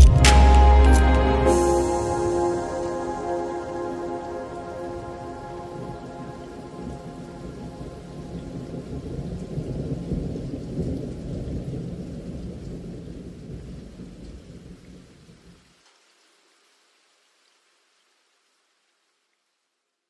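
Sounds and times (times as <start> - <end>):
steady rain: 0.0 - 20.0
rolling thunder: 1.5 - 14.8.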